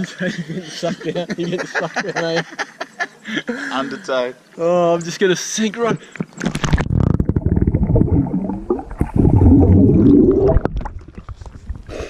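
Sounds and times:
underwater bubbles gurgling: 0:06.6 - 0:11.9.

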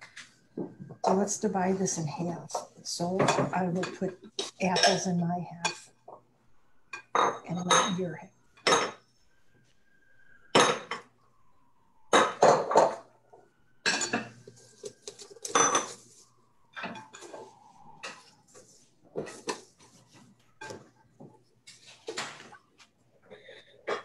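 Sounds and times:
dishes and utensils clattering: 0:07.0 - 0:08.0, 0:08.6 - 0:09.0, 0:10.6 - 0:11.1, 0:13.8 - 0:22.6, 0:23.3 - 0:24.0.

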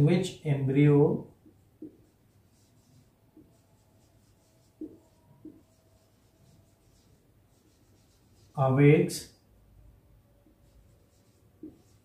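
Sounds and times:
marker squeaking on whiteboard: 0:01.5 - 0:08.6, 0:10.4 - 0:12.0.

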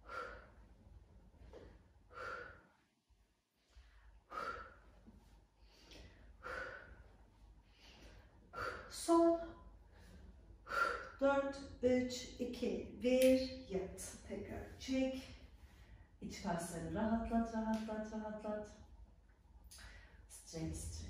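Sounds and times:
woman breathing heavily: 0:00.0 - 0:11.2, 0:15.2 - 0:16.2, 0:19.6 - 0:20.3.

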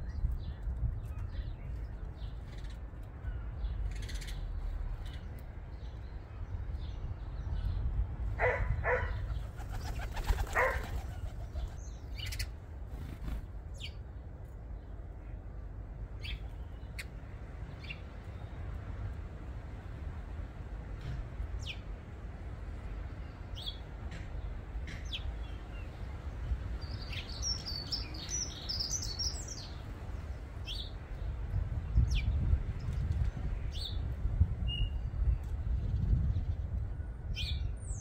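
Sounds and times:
birds chirping: 0:08.4 - 0:14.0, 0:22.8 - 0:31.3
bird wing flaps: 0:09.4 - 0:11.8, 0:12.9 - 0:13.5.

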